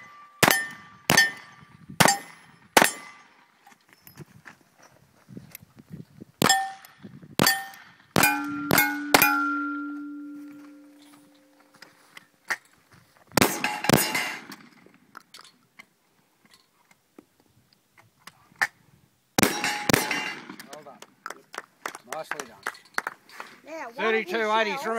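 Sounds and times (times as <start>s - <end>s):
steel plate clanging: 6.4s - 11.8s, 13.4s - 14.6s, 19.4s - 20.5s.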